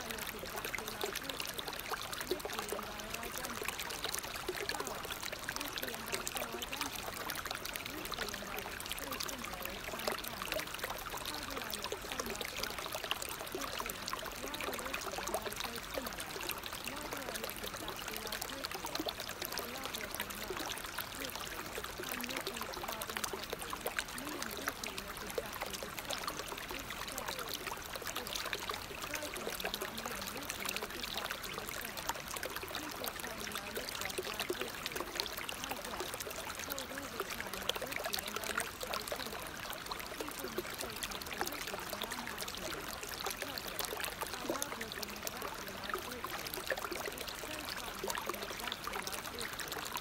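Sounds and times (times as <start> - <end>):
running water: 0.0 - 50.0.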